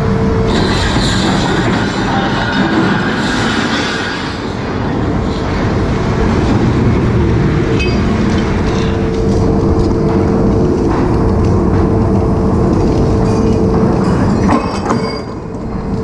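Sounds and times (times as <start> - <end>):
loud mechanical rumble and rushing: 0.0 - 16.0.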